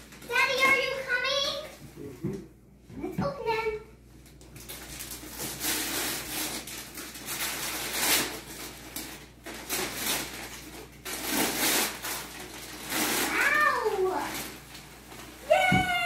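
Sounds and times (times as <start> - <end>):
wrapping paper crinkling and tearing: 0.0 - 1.1, 4.3 - 16.0.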